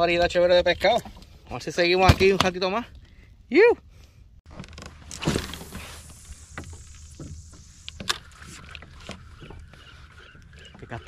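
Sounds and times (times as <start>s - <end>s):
steady hiss: 5.2s - 8.6s.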